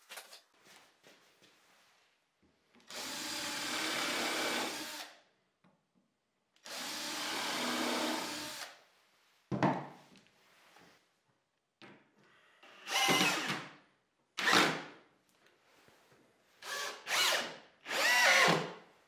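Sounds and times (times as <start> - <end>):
cordless drill boring into wood: 2.9 - 5.2, 6.6 - 8.8, 12.6 - 13.6, 14.4 - 14.8, 16.6 - 18.7.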